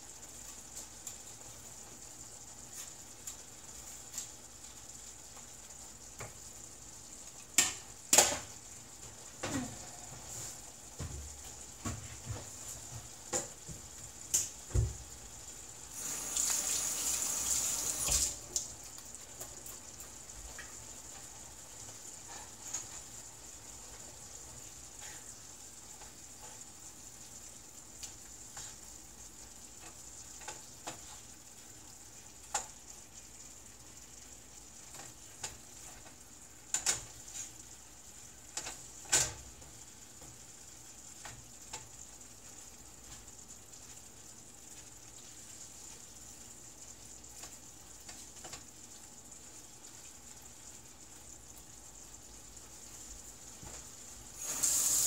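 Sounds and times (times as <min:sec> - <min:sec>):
beef sizzling in a skillet: 0:12.7 - 0:55.0.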